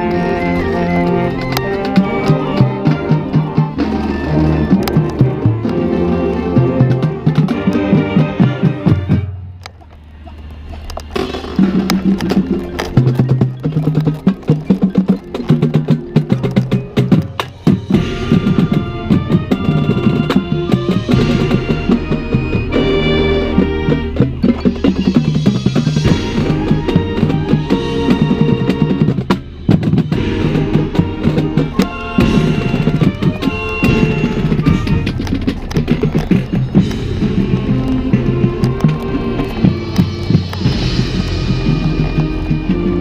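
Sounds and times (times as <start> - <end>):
saxophones and brass chords: 0.0 - 9.6, 17.8 - 43.0
snare and bass drums beating: 10.3 - 43.0.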